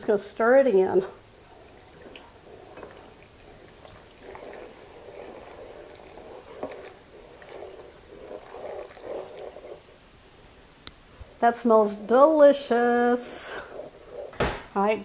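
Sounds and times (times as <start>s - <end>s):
liquid glugging from bottle: 1.1s - 10.0s.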